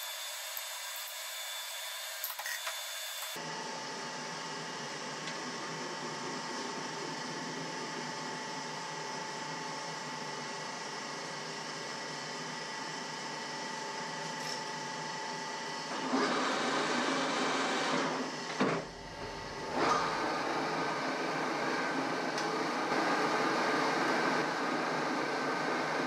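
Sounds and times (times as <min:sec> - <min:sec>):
metal lathe gear whine: 0:00.0 - 0:03.4.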